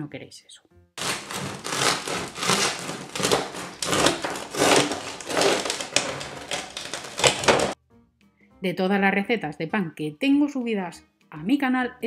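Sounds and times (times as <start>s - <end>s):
bread knife sawing through crust: 1.0s - 7.8s.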